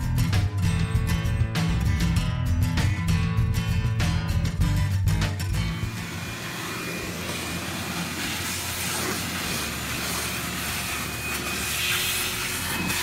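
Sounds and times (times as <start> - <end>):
electric sander whining: 5.7 - 13.0
sandpaper scratching wood: 5.9 - 13.0.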